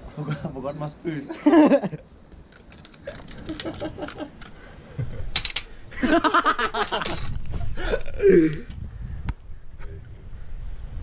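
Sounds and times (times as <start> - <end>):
man laughing: 1.3 - 2.1, 3.0 - 5.3, 5.9 - 8.7.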